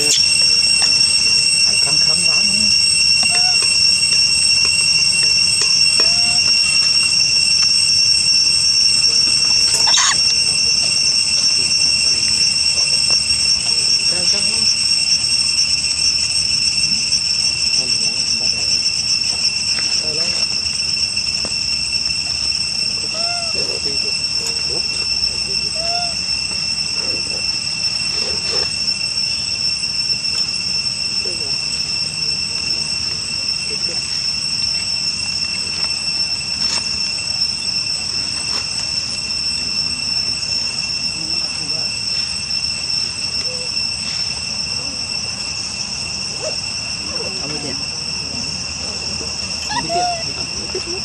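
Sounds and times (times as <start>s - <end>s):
insects buzzing: 0.0s - 51.0s.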